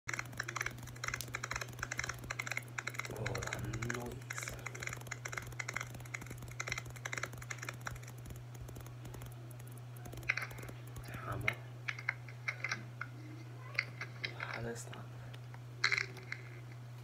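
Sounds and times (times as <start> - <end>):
rapid irregular clicking: 0.0 - 12.8
steady low hum: 0.1 - 17.0.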